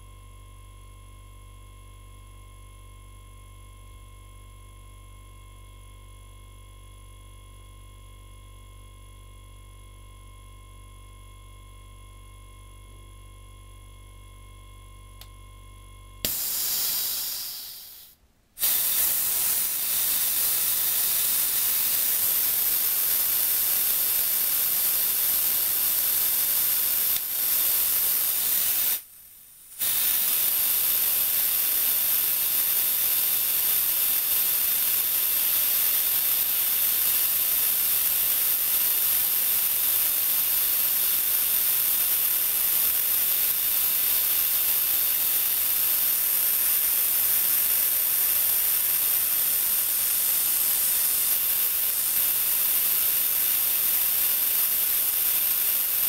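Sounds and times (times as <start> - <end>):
compressed air hissing: 16.2 - 29.1, 29.7 - 56.0.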